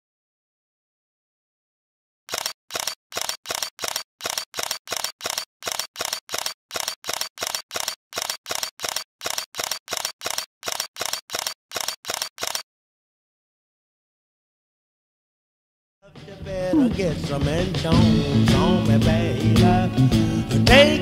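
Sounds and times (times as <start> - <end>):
camera shutter firing: 2.3 - 12.6.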